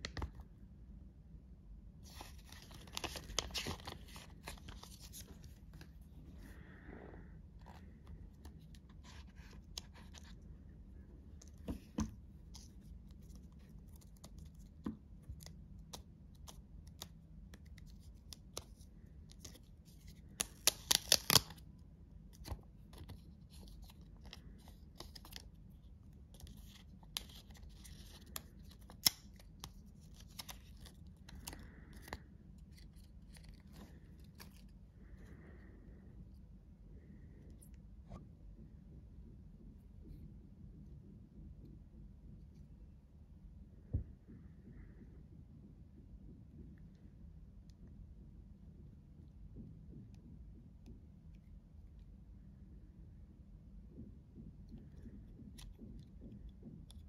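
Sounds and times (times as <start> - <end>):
plastic film crinkling: 2.1 - 5.5.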